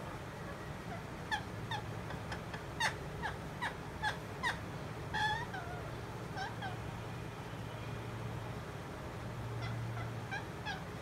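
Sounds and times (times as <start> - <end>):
parakeet squawking: 0.5 - 6.8, 9.6 - 11.0.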